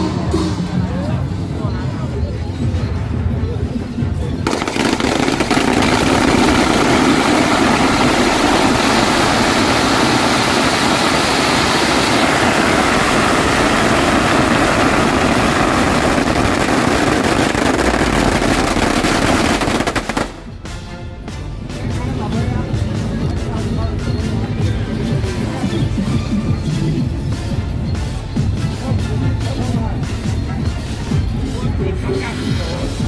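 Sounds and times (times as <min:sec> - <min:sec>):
firecrackers crackling: 0:04.4 - 0:20.6.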